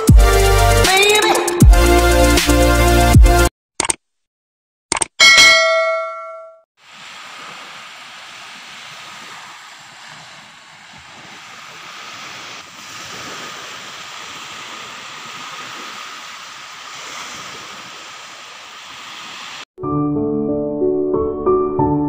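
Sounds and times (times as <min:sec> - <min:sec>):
small waves washing onto beach: 0:06.8 - 0:19.7.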